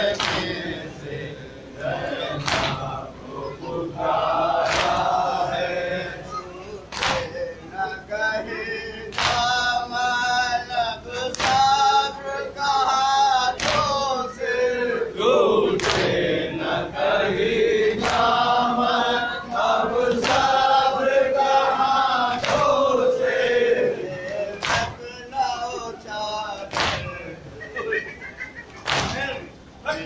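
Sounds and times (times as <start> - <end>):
crowd of men chanting: 0.0 - 25.2
unison chest-beating slaps: 0.2 - 0.6, 2.4 - 2.9, 4.6 - 5.1, 6.9 - 7.4, 9.1 - 9.6, 11.3 - 11.8, 13.6 - 14.0, 15.8 - 16.1, 18.0 - 18.4, 20.1 - 20.6, 22.3 - 22.8, 24.3 - 25.0, 26.7 - 27.2, 28.8 - 29.4.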